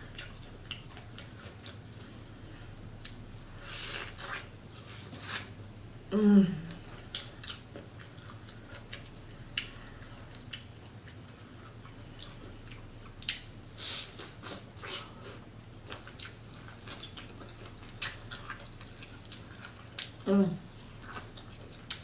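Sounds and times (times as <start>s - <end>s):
person chewing with mouth clicks: 0.0s - 2.3s, 6.7s - 22.0s.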